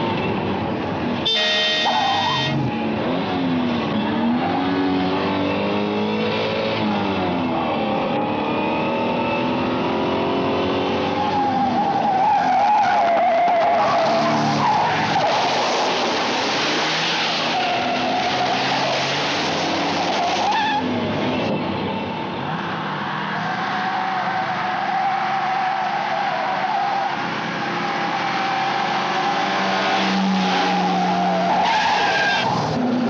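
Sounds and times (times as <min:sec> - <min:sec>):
car engine revving hard: 0:01.7 - 0:11.3, 0:15.8 - 0:21.2
tyres squealing: 0:01.8 - 0:02.6, 0:23.4 - 0:32.9.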